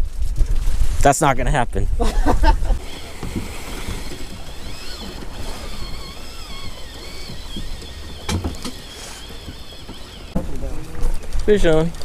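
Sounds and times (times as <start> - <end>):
wind: 0.0 - 12.0
water sounds: 2.7 - 12.0.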